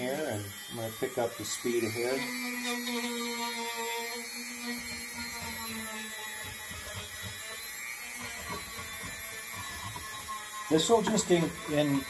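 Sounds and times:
rotary tool polishing metal: 0.0s - 12.0s.

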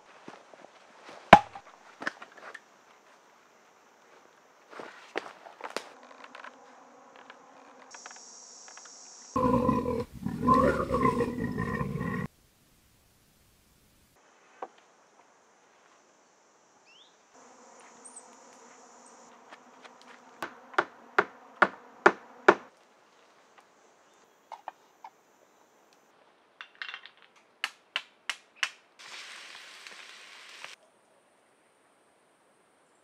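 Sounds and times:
flying insect buzzing: 6.0s - 12.3s, 17.4s - 22.7s
rustling hiss: 6.6s - 20.4s, 29.0s - 30.8s.

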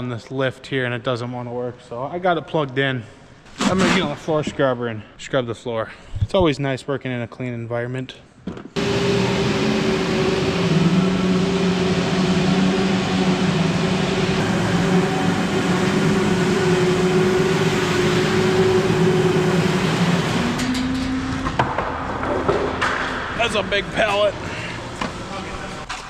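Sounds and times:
floor scrubber motor hum: 8.8s - 25.8s.

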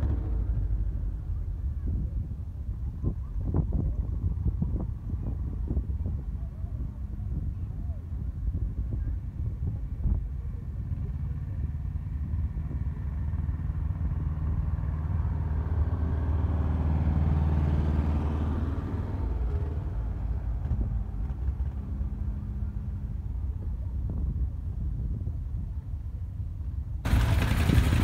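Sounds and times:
tractor engine passing by: 0.0s - 2.9s, 10.7s - 23.2s, 27.0s - 28.0s.

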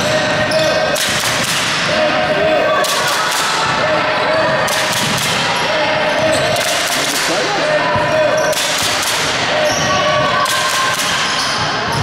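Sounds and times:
din of voices: 1.8s - 11.1s.

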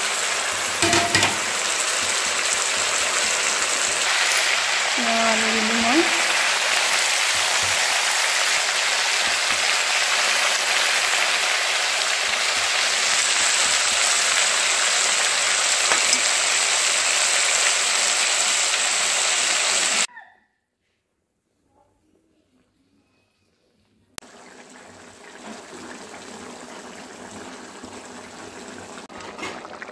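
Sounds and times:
food sizzling in hot oil: 0.0s - 20.1s
metal spatula stirring: 0.8s - 1.6s.

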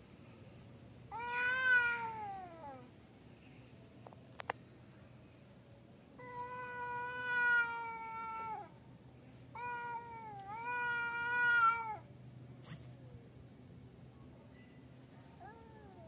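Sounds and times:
tomcats yowling: 1.1s - 2.9s, 6.2s - 8.7s, 9.6s - 12.0s.

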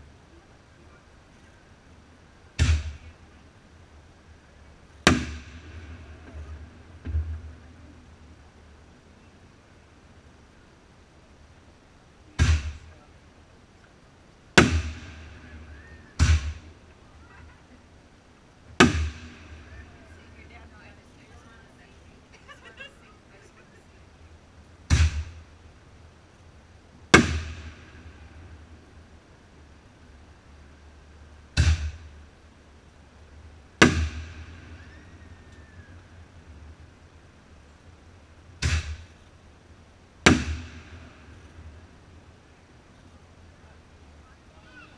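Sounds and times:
fireworks bangs echoing: 14.6s - 16.8s, 18.8s - 20.7s.

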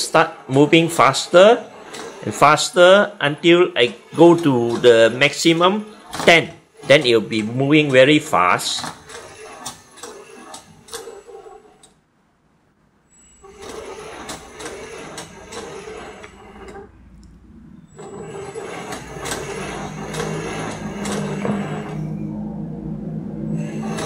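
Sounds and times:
low motor hum: 13.4s - 24.0s.

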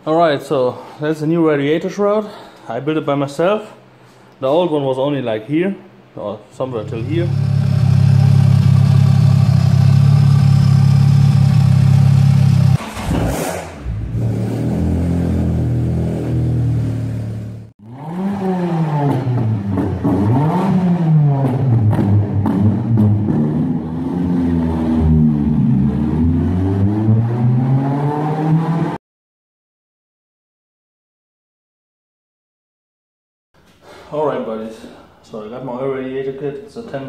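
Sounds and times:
car engine revving: 6.8s - 29.0s
car engine idling: 6.9s - 12.8s.

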